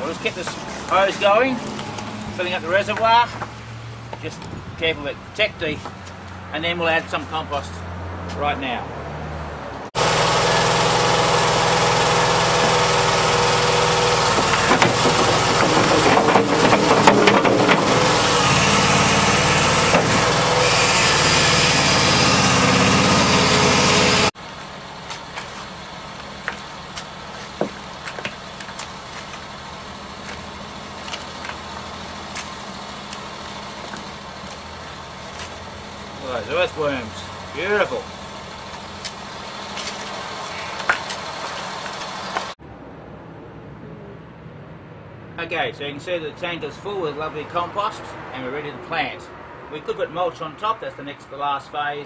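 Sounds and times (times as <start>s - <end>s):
small engine running: 10.0s - 42.6s
scraping: 14.2s - 36.3s
shovel scraping on gravel: 24.6s - 35.6s.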